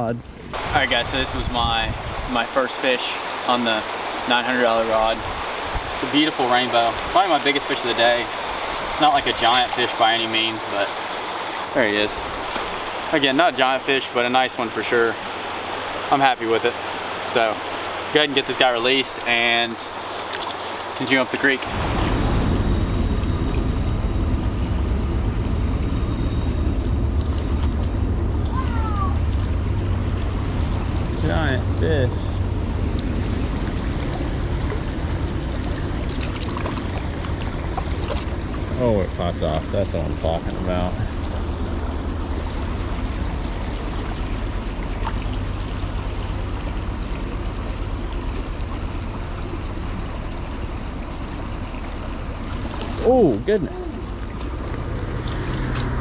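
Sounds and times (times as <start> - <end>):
wind rumble on microphone: 0.0 - 2.5, 5.1 - 6.1, 21.6 - 50.1
creek water rushing: 0.4 - 22.7, 23.6 - 56.0.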